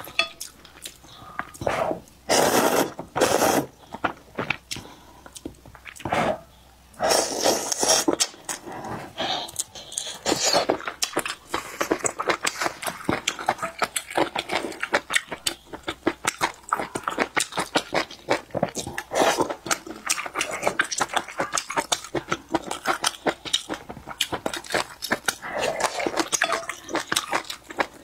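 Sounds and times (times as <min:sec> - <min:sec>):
slurping noodles: 0:01.6 - 0:03.7, 0:07.0 - 0:09.1.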